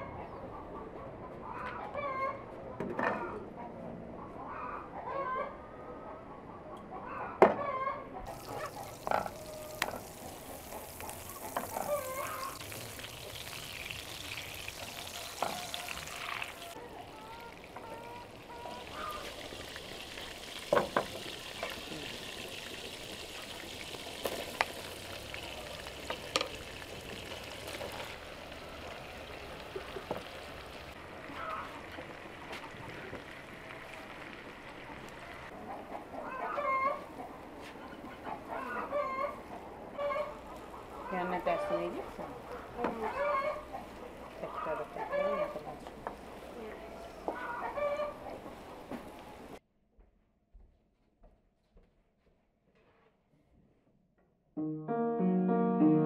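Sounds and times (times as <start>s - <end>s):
butter sizzling in frying pan: 8.3s - 16.7s, 18.8s - 31.0s.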